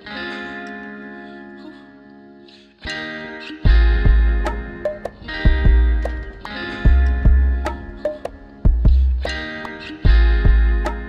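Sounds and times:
background music: 0:00.0 - 0:11.0
heavy bass: 0:03.7 - 0:04.8, 0:05.4 - 0:07.9, 0:08.7 - 0:09.4, 0:10.1 - 0:11.0.

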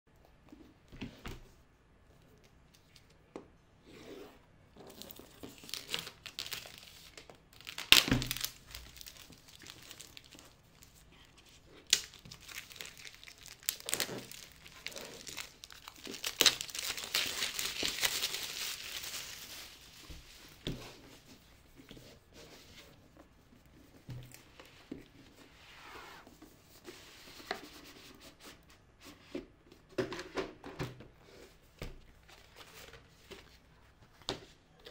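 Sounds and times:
cardboard rustling: 0:04.9 - 0:25.2
cardboard tearing: 0:11.9 - 0:19.5.

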